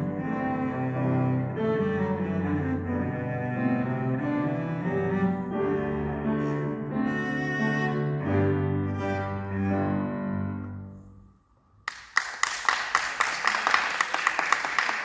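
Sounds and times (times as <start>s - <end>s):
cello bowed notes: 0.0s - 11.2s
audience clapping: 11.8s - 15.0s.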